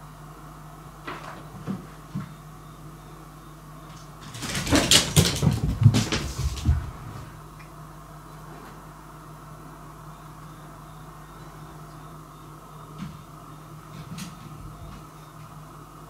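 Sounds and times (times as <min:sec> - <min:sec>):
rapid knocking and rattling thumps: 0:04.3 - 0:06.9.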